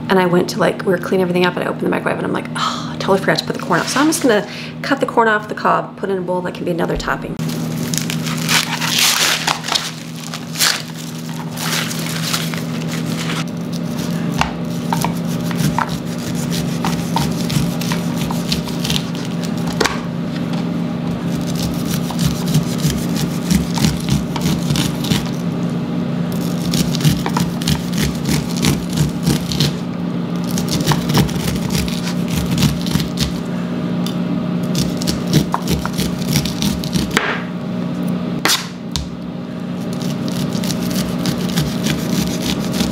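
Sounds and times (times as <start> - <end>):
steady low hum: 0.0 - 42.9
corn husks tearing: 7.5 - 19.8, 21.2 - 25.4, 26.3 - 29.8, 30.4 - 33.4, 34.7 - 37.2, 39.8 - 42.9
knife scraping on cutting board: 8.4 - 9.4, 11.3 - 19.7, 21.2 - 25.4, 26.4 - 29.8, 30.5 - 33.4, 34.7 - 37.2, 39.8 - 42.9.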